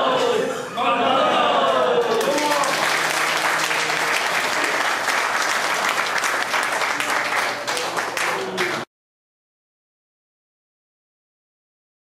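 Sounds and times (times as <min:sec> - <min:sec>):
crowd applauding: 0:02.0 - 0:08.9.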